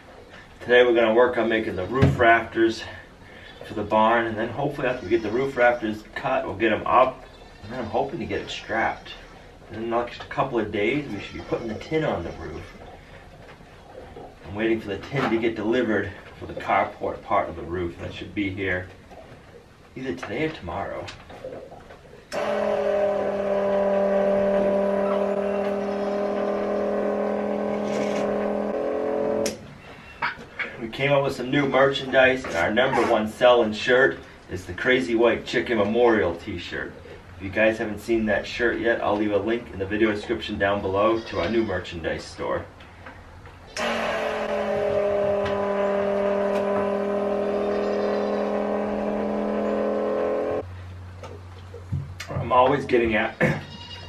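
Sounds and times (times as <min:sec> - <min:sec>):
vacuum pump motor humming: 0:22.3 - 0:29.6, 0:43.8 - 0:50.6.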